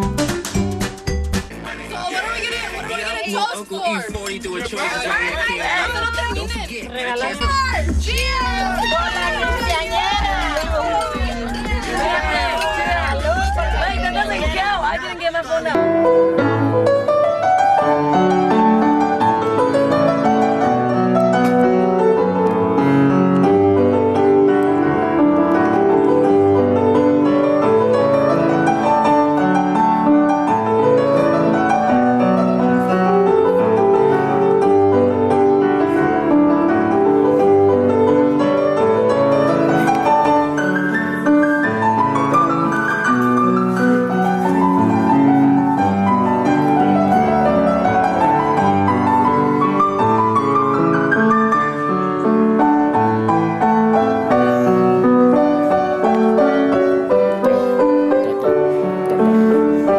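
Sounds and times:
piano music: 0:00.0 - 0:59.9.

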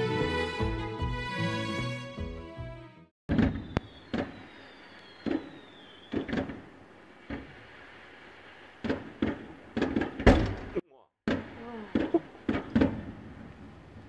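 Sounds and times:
fireworks booming with echo: 0:03.3 - 0:06.8
faint descending whistle: 0:03.6 - 0:06.2.

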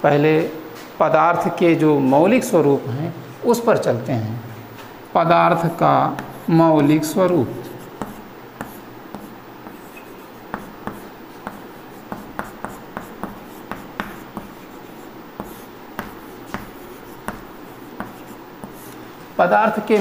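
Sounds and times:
chalk writing on blackboard: 0:05.5 - 0:19.0.

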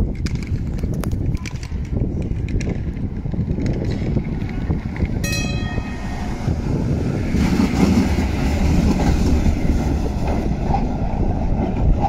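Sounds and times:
tram wheels rumbling on rails: 0:00.0 - 0:12.0.

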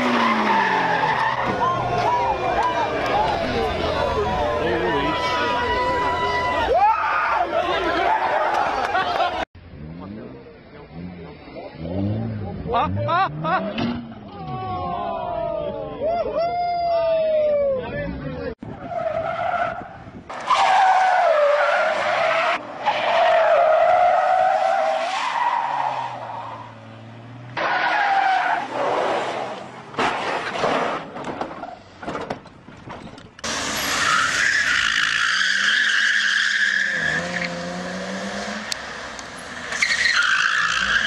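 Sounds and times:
car tyres squealing: 0:00.0 - 0:09.4, 0:18.6 - 0:32.0, 0:33.0 - 0:41.0
engine revving: 0:09.7 - 0:14.3, 0:36.8 - 0:39.8
knocks and scraping: 0:29.0 - 0:33.5.

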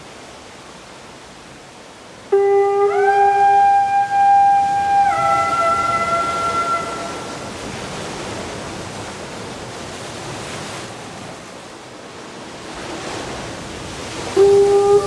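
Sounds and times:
conch shell horn note: 0:02.3 - 0:07.5, 0:14.4 - 0:15.0.

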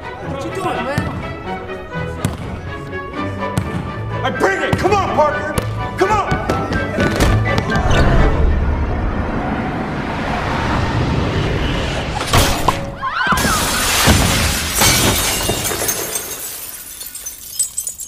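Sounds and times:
glass backboard shattering: 0:13.4 - 0:18.0.

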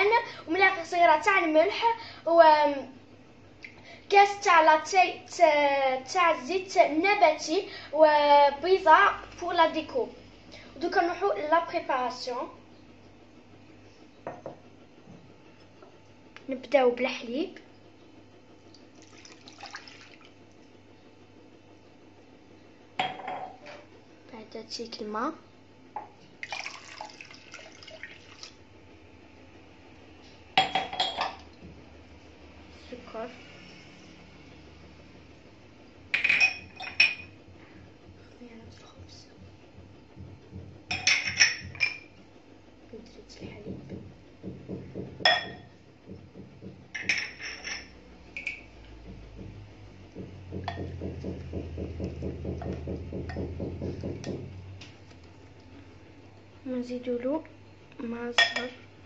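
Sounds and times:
water pouring into bowl: 0:18.9 - 0:20.4, 0:26.4 - 0:28.6
glass cup clinking on bowl: 0:30.6 - 0:31.4, 0:45.3 - 0:45.7, 0:58.4 - 0:58.8
glassware clink: 0:30.6 - 0:31.4, 0:36.2 - 0:37.3, 0:40.9 - 0:42.1, 0:45.3 - 0:45.7, 0:47.0 - 0:48.7, 0:58.4 - 0:58.8.

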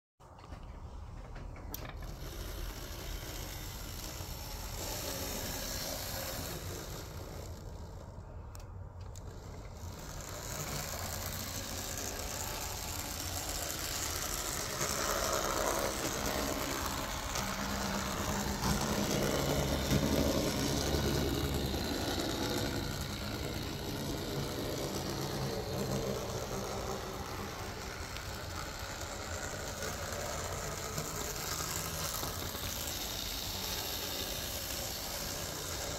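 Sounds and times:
wheels rolling on rails: 0:00.2 - 0:35.9
model train motor whirring: 0:00.3 - 0:35.9.

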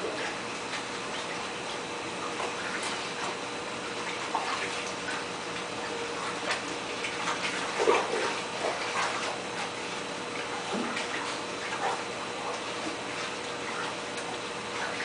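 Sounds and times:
faint motor hum: 0:00.0 - 0:15.0.

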